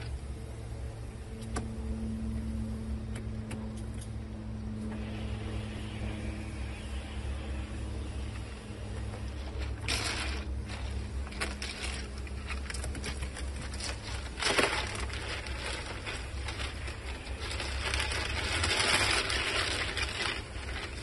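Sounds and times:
steady low hum: 0:00.0 - 0:21.0
ice cubes crunching and scraping: 0:09.3 - 0:21.0.

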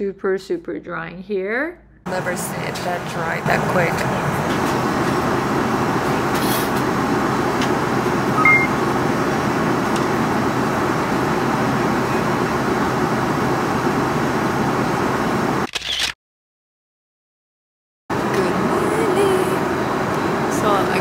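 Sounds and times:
airliner cabin roar: 0:02.1 - 0:15.6, 0:18.1 - 0:21.0
two-tone beep: 0:08.4 - 0:08.8.

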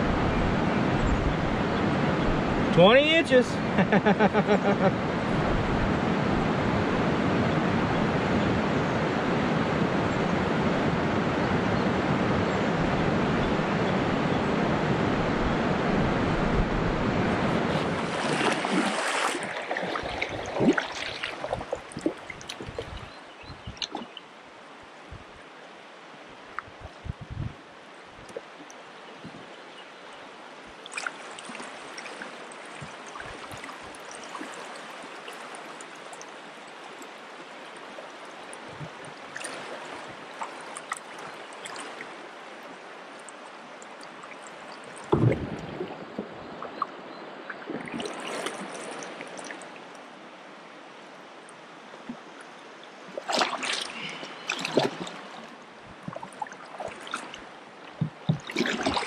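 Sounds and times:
river current rushing: 0:00.0 - 0:26.6, 0:27.6 - 0:59.0
kayak paddle splashing: 0:15.3 - 0:24.3, 0:30.8 - 0:50.2, 0:52.0 - 0:59.0
strong thump: 0:45.1 - 0:45.8.

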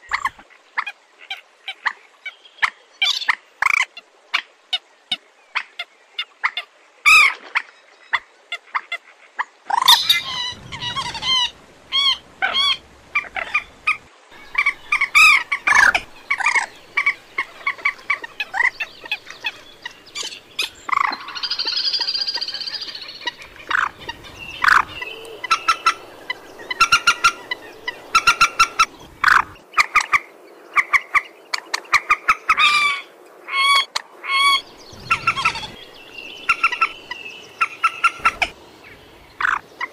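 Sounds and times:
moorhen clucking: 0:09.7 - 0:30.2, 0:30.8 - 0:39.9
moorhen long call: 0:09.7 - 0:39.9.

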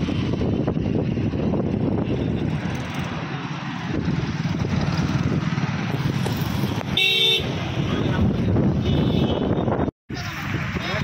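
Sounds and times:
road traffic rumble: 0:00.0 - 0:11.0
wind buffeting microphone: 0:00.0 - 0:11.0
vehicle horn blast: 0:06.9 - 0:07.6, 0:08.8 - 0:09.8.

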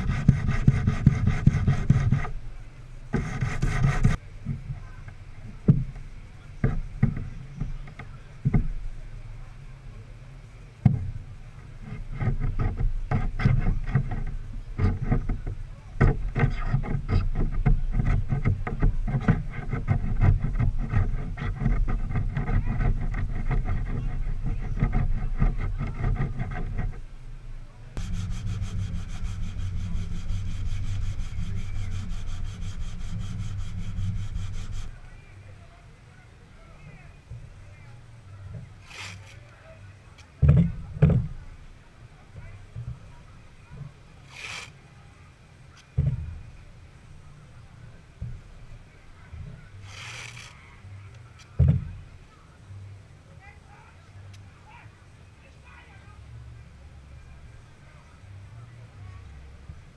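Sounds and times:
metal blade scraping wood: 0:00.0 - 0:02.4, 0:03.1 - 0:04.2, 0:16.0 - 0:27.1, 0:28.0 - 0:34.9, 0:38.8 - 0:39.5, 0:44.2 - 0:44.8, 0:49.8 - 0:50.6
sandpaper rubbing: 0:00.0 - 0:02.4, 0:03.2 - 0:04.2, 0:16.2 - 0:27.0, 0:28.0 - 0:35.0, 0:38.8 - 0:39.5, 0:44.2 - 0:44.8, 0:49.8 - 0:50.6
steady low rumble: 0:00.0 - 0:53.2
steady low hum: 0:00.0 - 0:59.9.

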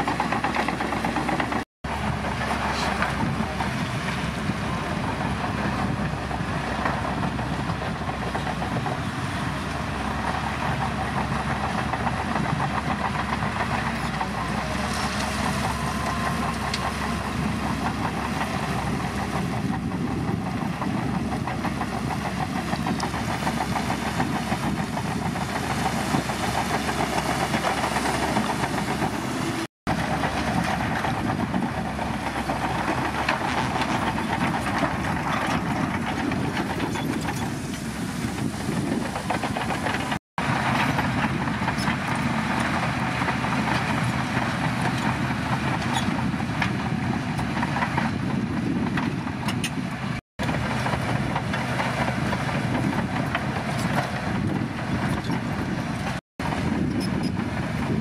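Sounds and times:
bulldozer diesel engine under load: 0:00.0 - 0:58.0
steel tracks clanking: 0:10.4 - 0:47.0.

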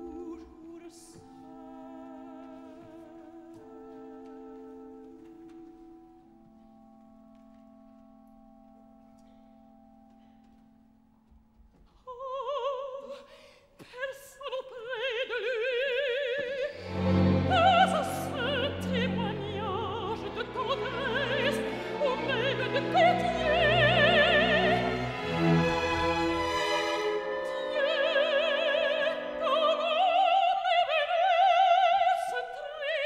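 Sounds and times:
woman singing opera: 0:00.0 - 0:05.3, 0:12.0 - 0:33.0
orchestra playing: 0:16.7 - 0:31.2.

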